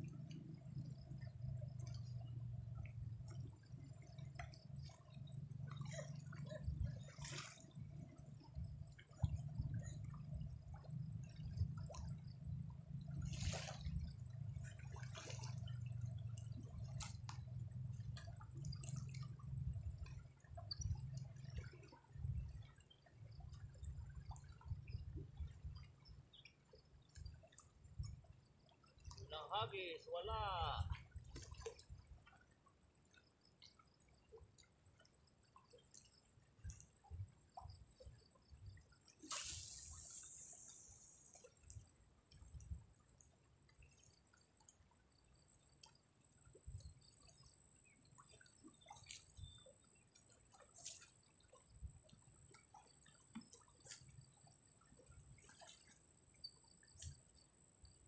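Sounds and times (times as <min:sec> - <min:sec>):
water sloshing and dripping: 0:00.0 - 0:58.0
short splashy hisses: 0:39.2 - 0:41.2.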